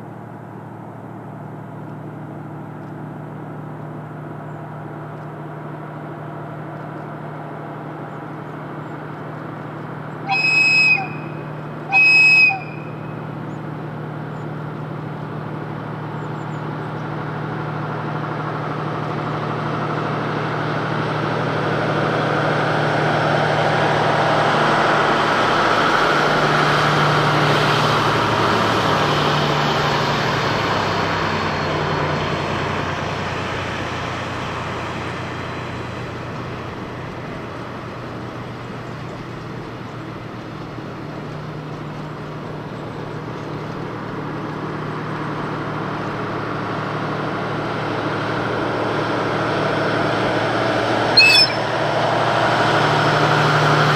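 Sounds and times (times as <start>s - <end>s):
locomotive engine working hard: 0.0s - 53.9s
train horn blasts: 10.2s - 13.4s, 51.2s - 51.8s.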